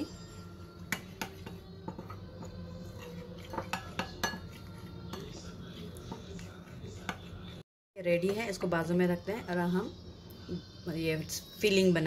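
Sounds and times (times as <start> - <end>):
spoon stirring in ceramic bowl: 0.8 - 8.6
spoon clinking against bowl: 3.0 - 5.4.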